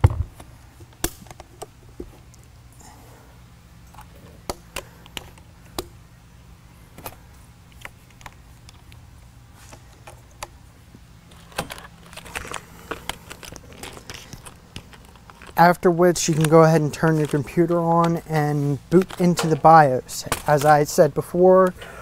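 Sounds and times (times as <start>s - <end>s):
hands handling laptop clicks: 11.3s - 15.6s.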